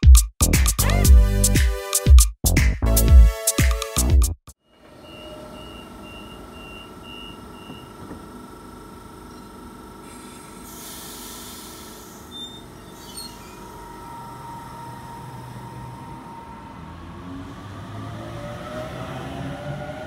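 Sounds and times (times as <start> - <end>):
door-warning beeps: 4.7 - 8.2
train motor whine: 4.7 - 18.2
train doors shutting with air hiss: 10.0 - 16.4.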